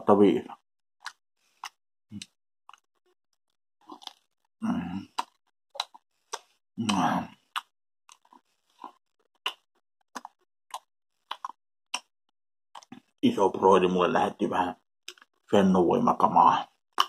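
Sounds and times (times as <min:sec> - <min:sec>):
person chewing with wet smacking: 0:01.0 - 0:03.1, 0:03.8 - 0:12.1, 0:12.8 - 0:13.1, 0:15.1 - 0:15.5.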